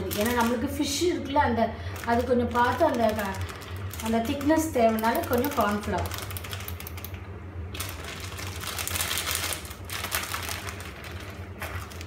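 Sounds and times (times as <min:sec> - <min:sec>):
plastic bag crinkling: 0:00.0 - 0:12.0
steady low hum: 0:00.0 - 0:12.0.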